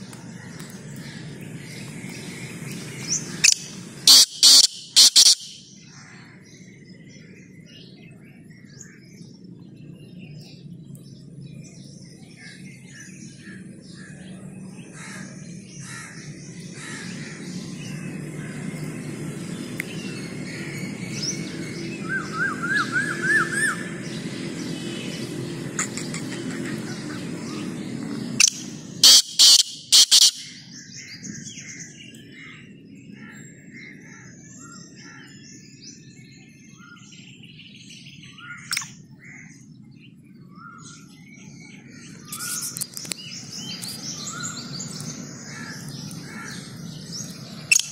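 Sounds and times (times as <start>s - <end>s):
francolin calling loudly: 3.0s - 5.8s, 25.7s - 30.8s, 44.2s - 47.9s.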